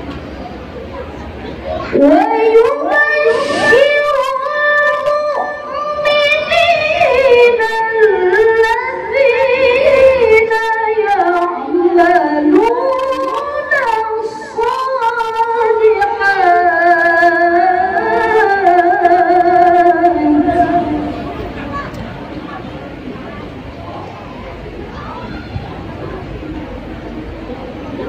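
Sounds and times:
woman reciting melodically: 1.9s - 21.9s.

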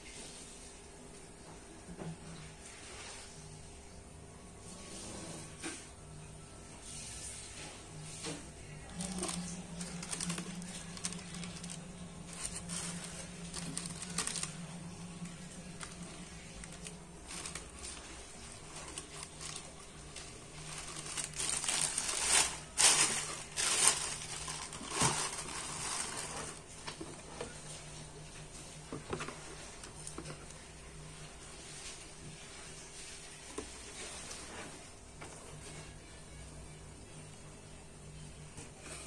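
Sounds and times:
tissue paper rustling: 6.9s - 27.8s.

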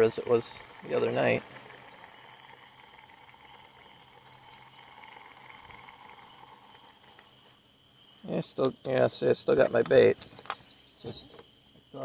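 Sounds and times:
thin high steady tone: 0.0s - 8.6s
soft steady hiss: 0.0s - 12.0s.

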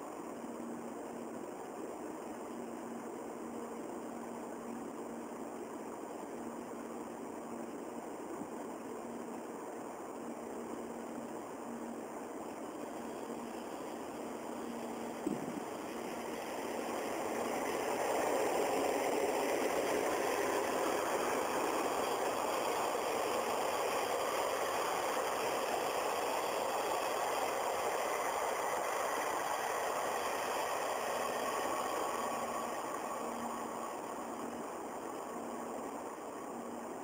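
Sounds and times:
train wheels rumbling on rails: 12.8s - 34.9s.

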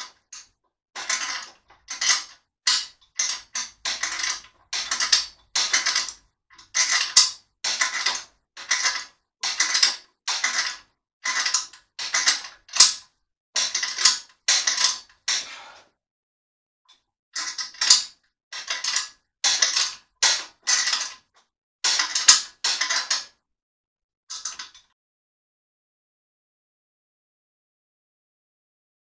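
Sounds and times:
loading mechanism creaking: 1.0s - 13.0s.

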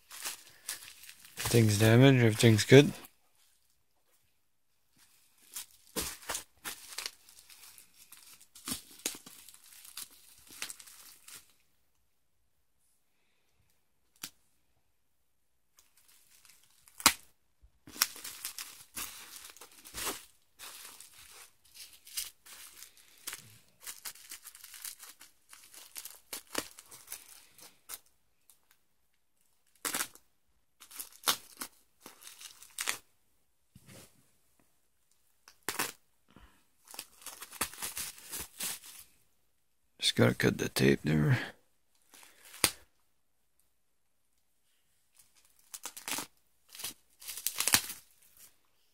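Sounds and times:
packing tape tearing and crinkling: 0.0s - 2.7s, 5.4s - 11.5s, 17.9s - 28.1s, 29.6s - 30.2s, 30.8s - 33.0s, 35.4s - 36.0s, 36.8s - 39.1s, 42.1s - 42.8s, 45.3s - 48.5s.

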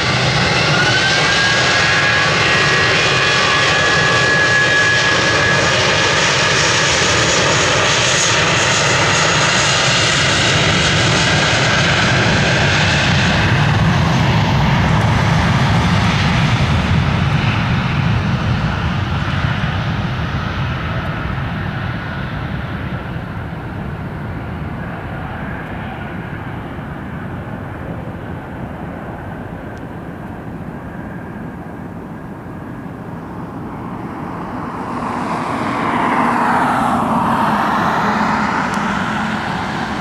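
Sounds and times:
jet engines roaring: 0.0s - 40.0s.

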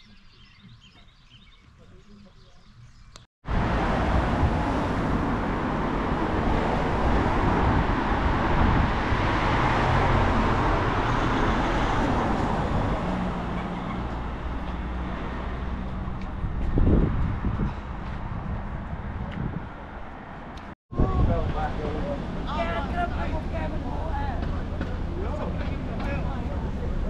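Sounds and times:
road and wind noise: 0.1s - 27.0s.

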